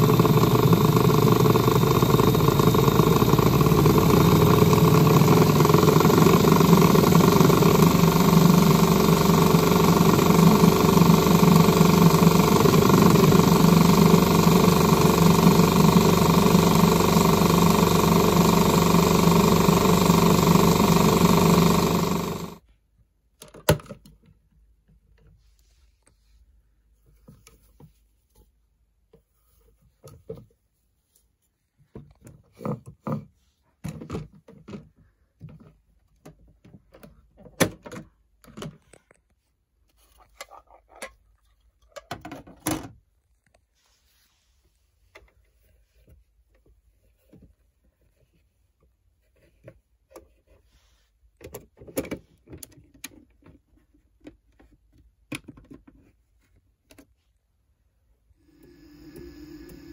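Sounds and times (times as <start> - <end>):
washing machine spinning: 0.0 - 22.6, 58.5 - 59.9.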